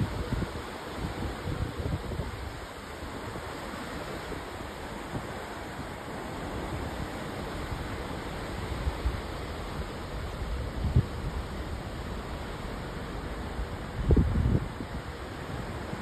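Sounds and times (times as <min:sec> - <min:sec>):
wind buffeting microphone: 0:00.0 - 0:02.7, 0:13.8 - 0:16.0
wind and sea water rushing: 0:00.0 - 0:16.0.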